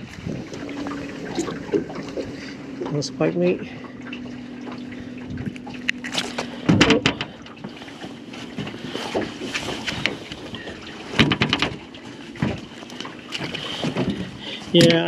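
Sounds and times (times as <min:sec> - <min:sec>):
wind noise on microphone: 0:00.0 - 0:02.6, 0:05.0 - 0:07.3
sharp knocks and rattles: 0:05.4 - 0:15.0.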